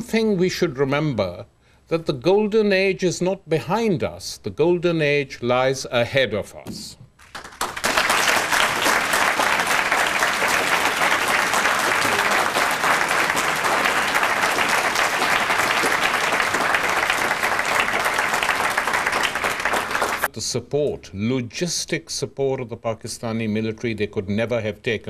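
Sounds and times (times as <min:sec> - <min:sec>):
audience applauding: 0:07.2 - 0:20.3.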